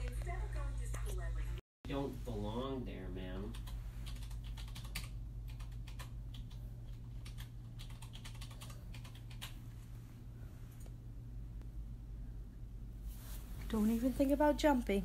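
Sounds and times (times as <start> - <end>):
low steady hum: 0.0 - 15.0
computer keyboard typing: 3.4 - 9.6.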